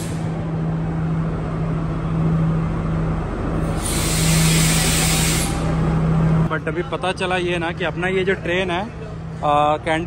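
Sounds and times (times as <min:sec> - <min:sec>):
hiss of air: 0:00.0 - 0:00.3, 0:03.6 - 0:05.8
diesel train engine droning: 0:00.0 - 0:10.0.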